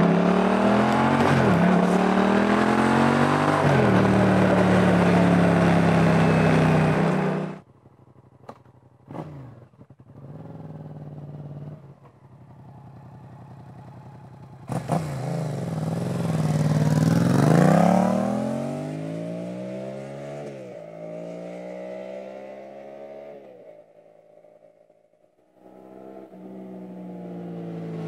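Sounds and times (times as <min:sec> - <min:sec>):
motorcycle engine revving hard: 0:00.0 - 0:07.6, 0:14.7 - 0:23.5.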